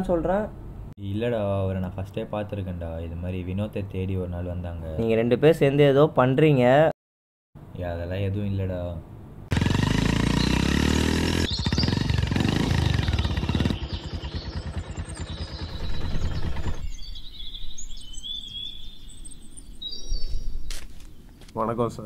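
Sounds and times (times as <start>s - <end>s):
motorcycle engine revving: 9.5s - 17.0s
birds chirping: 9.5s - 22.0s.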